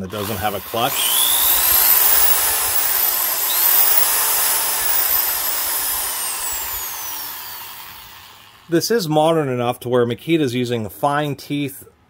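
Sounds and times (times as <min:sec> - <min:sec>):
hammer drill motor whine: 0:00.0 - 0:08.7.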